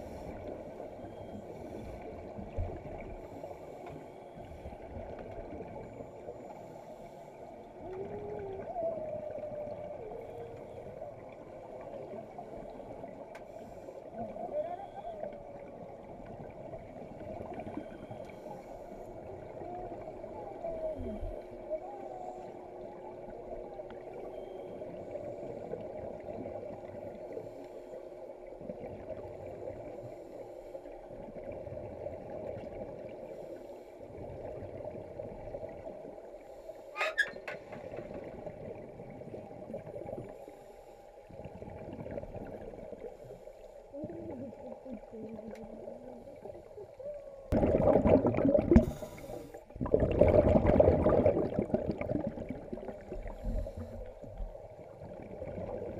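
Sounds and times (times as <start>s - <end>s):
muffled underwater hum: 0.0s - 55.9s
exhaled bubbles: 7.7s - 13.2s, 41.2s - 43.2s, 43.9s - 55.9s
loud rush of exhaust bubbles: 47.5s - 49.0s, 49.7s - 52.9s.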